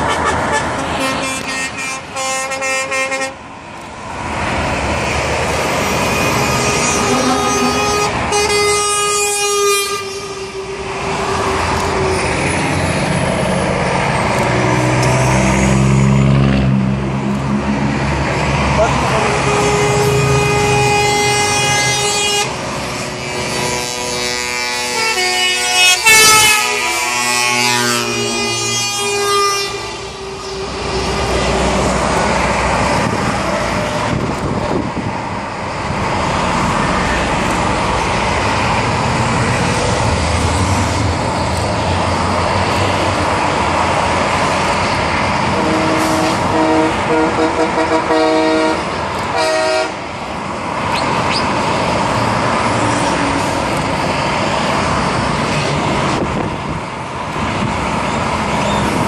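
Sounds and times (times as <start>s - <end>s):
truck air horns blaring: 0.0s - 3.6s, 5.5s - 16.0s, 18.7s - 34.2s, 44.8s - 50.3s
traffic and tyre noise: 0.0s - 59.0s
short horn toots: 45.6s - 50.0s.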